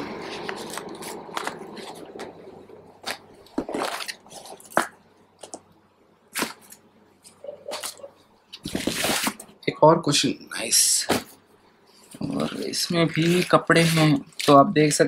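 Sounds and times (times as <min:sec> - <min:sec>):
plastic wrapping crinkling: 0:03.0 - 0:05.6, 0:07.7 - 0:09.4, 0:12.2 - 0:14.7.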